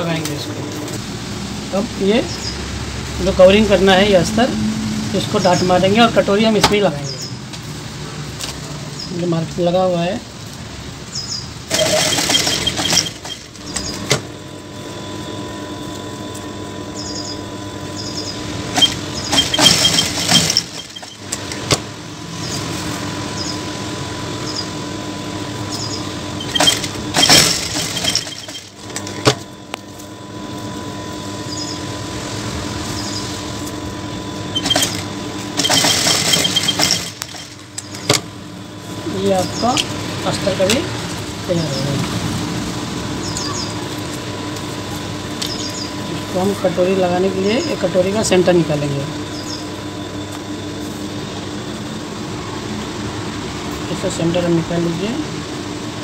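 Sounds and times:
fast machine stitching: 11.7 - 14.0, 18.7 - 21.6, 26.4 - 29.0, 34.5 - 37.7
sewing machine motor humming: 11.7 - 14.0, 18.6 - 21.7, 26.4 - 29.3, 34.5 - 38.2.

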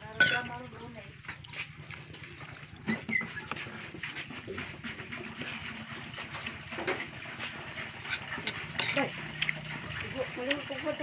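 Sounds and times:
metal spoon scraping a plate: 7.8 - 9.8.

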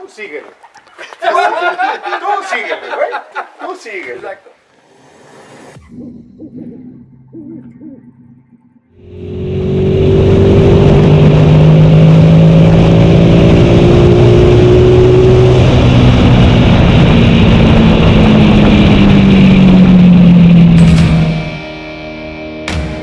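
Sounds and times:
motorcycle engine cruising: 8.9 - 21.8
wind and road noise: 9.0 - 21.2.

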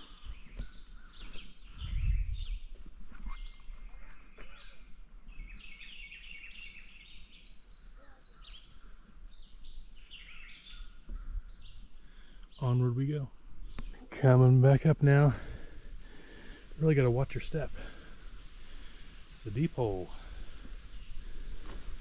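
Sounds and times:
high-pitched insect drone: 0.0 - 16.2
birds chirping: 0.0 - 22.0
low rumble on microphone: 1.6 - 2.7.

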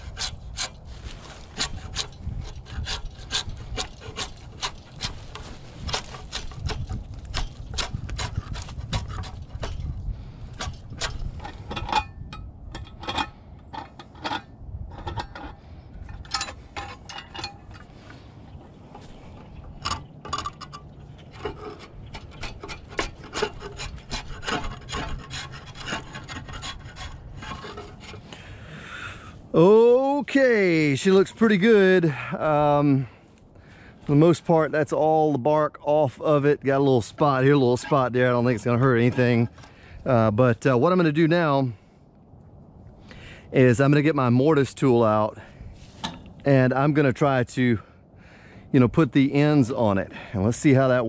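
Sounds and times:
draw knife scraping bark: 0.0 - 12.0, 18.9 - 28.5.

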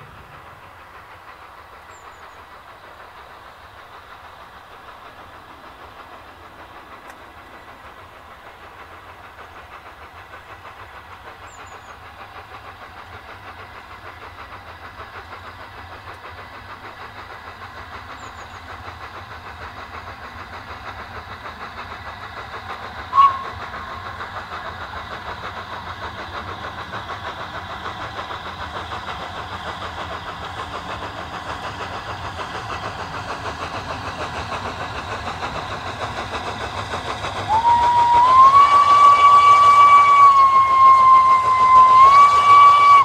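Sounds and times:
steam locomotive exhaust beats: 0.0 - 43.0
steam locomotive whistle: 23.1 - 23.9, 37.5 - 43.0.

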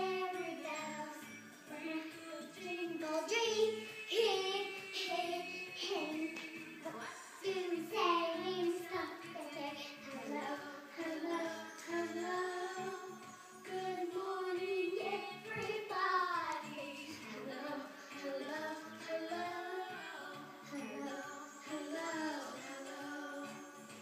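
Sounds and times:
child singing: 0.0 - 23.9
backing music: 0.0 - 24.0.

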